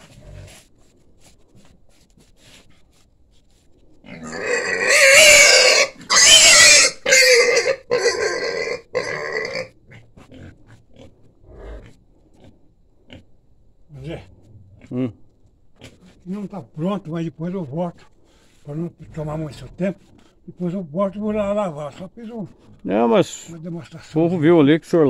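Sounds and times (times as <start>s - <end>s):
young pig squealing: 4.1s - 11.1s.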